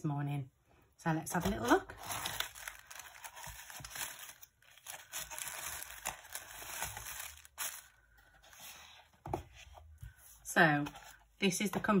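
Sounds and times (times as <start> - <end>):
tissue paper rustling: 1.7 - 9.0.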